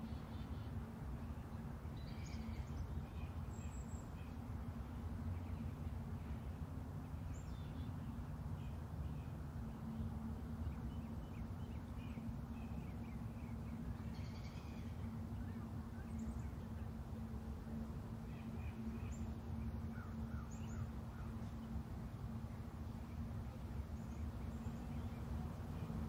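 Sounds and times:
faint hum: 0.0s - 26.0s
steady low rumble: 0.0s - 26.0s
small birds chirping: 7.0s - 21.8s.

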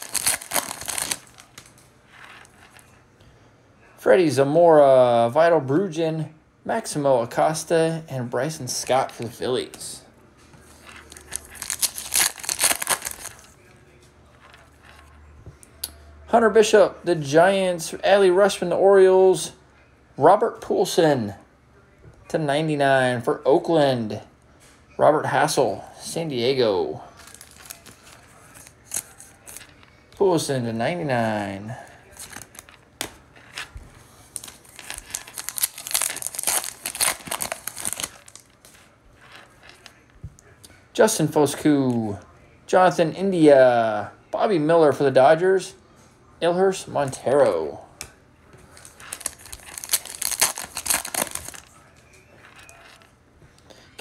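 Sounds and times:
foil wrapper tearing and crinkling: 0.0s - 2.6s, 10.8s - 13.6s, 27.2s - 29.7s, 32.1s - 32.8s, 34.3s - 39.9s, 48.8s - 51.8s
faint handling of cards: 0.0s - 3.1s, 8.7s - 15.8s, 27.0s - 40.8s, 47.0s - 53.8s.

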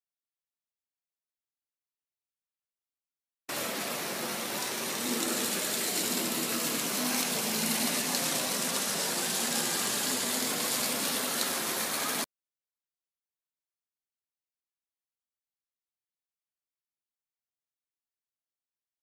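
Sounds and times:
waterfall splashing into pool: 3.5s - 12.3s.

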